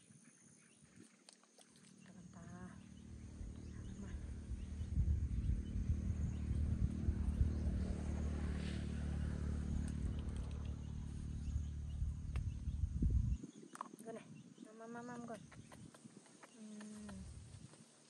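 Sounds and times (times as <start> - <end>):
low background rumble: 2.2 - 13.5.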